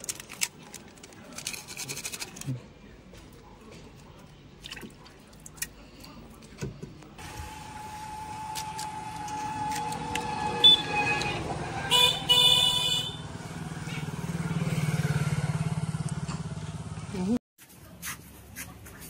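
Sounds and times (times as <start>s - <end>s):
liquid squishing handling sounds: 0.0s - 6.7s
street noise with steady tone: 6.4s - 19.0s.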